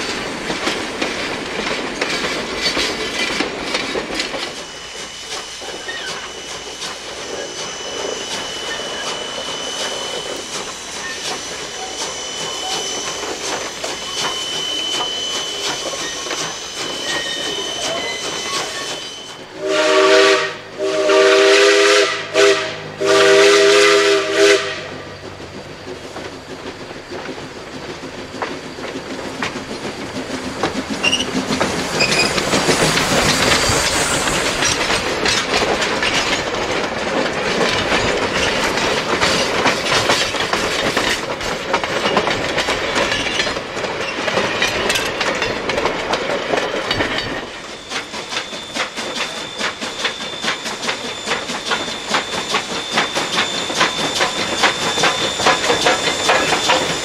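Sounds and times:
train wheels clattering over rail joints: 0:00.0 - 0:19.6, 0:24.6 - 0:57.0
steam locomotive whistle blasts: 0:04.5 - 0:25.2, 0:47.6 - 0:57.0.

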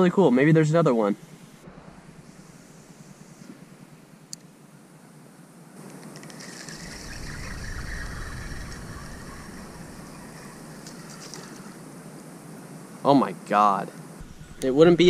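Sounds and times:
low rumble: 0:01.6 - 0:03.9, 0:06.7 - 0:11.8
fishing reel whirring: 0:06.0 - 0:11.8.

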